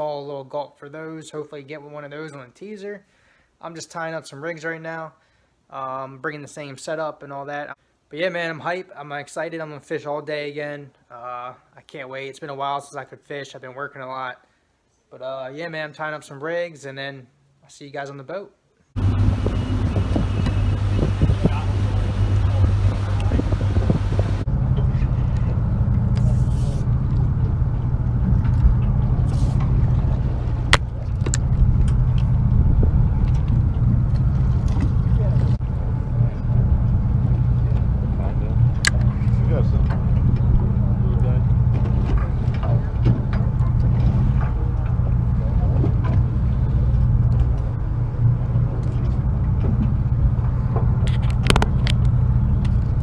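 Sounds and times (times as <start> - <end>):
boat engine humming: 19.0 - 53.0.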